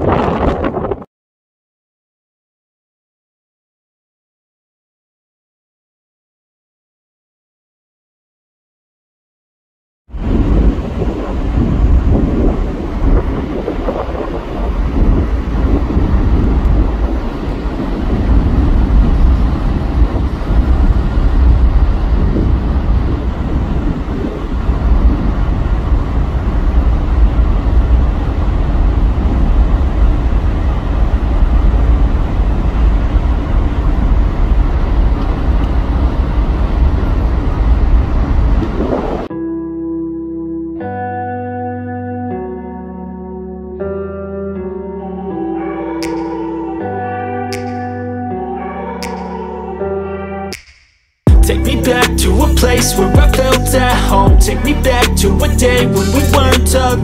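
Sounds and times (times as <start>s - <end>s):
wind buffeting microphone: 0.0s - 1.1s, 10.1s - 39.3s.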